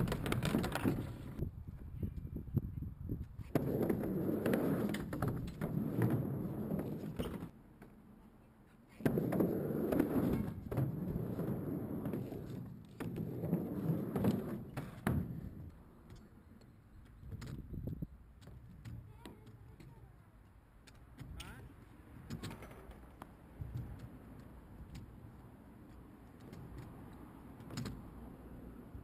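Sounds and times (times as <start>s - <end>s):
skateboard clacks: 0.0s - 1.4s
skateboard wheels rolling: 0.0s - 1.4s, 3.2s - 7.6s, 9.0s - 20.2s, 20.8s - 29.0s.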